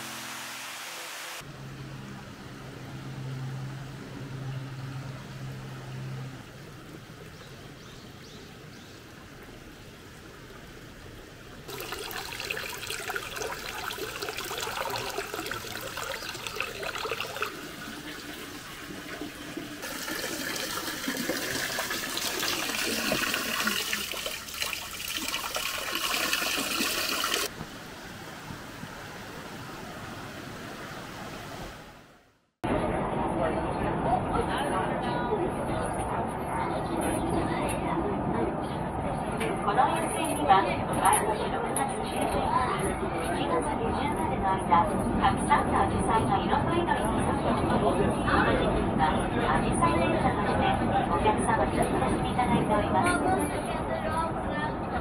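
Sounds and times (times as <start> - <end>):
water splashing into stone basin: 11.7 - 27.5.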